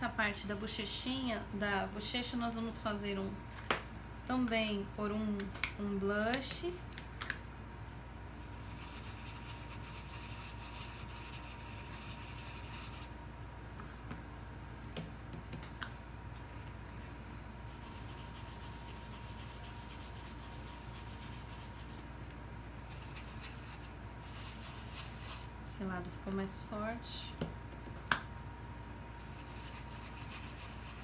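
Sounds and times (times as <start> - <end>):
steady low hum: 0.0 - 31.0
brush rubbing on foam: 8.4 - 13.2, 17.6 - 22.1, 22.8 - 25.6, 29.2 - 31.0.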